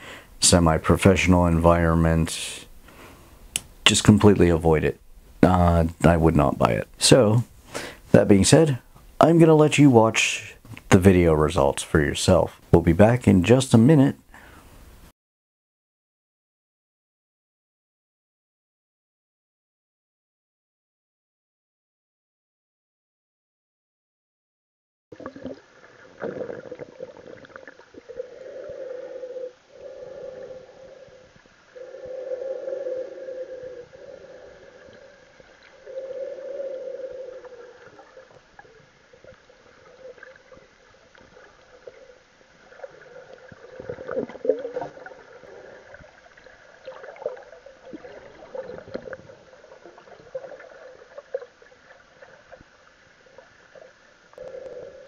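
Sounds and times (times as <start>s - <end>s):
water swishing underwater: 25.1s - 55.0s.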